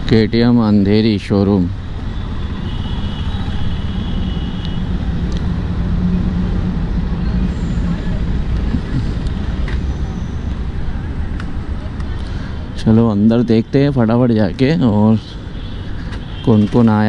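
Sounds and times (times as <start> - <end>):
traffic noise: 0.0 - 17.0
motorcycle engine rumbling: 1.7 - 17.0.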